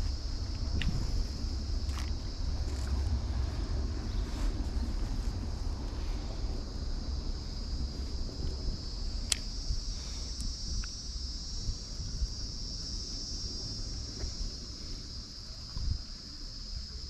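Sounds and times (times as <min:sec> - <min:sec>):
low rumble: 0:00.0 - 0:16.1
high-pitched insect chorus: 0:00.0 - 0:17.0
sharp click: 0:09.3 - 0:09.5.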